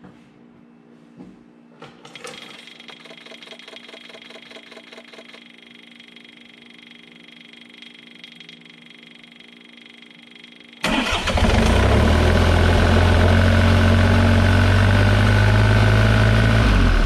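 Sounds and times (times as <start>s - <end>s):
diesel engine starting and idling: 10.8s - 17.0s.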